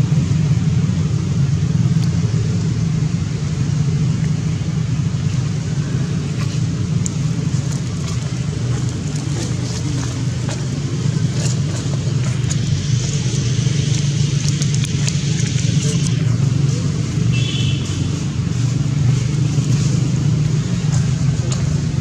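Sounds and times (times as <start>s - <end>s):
motor humming: 5.6s - 22.0s.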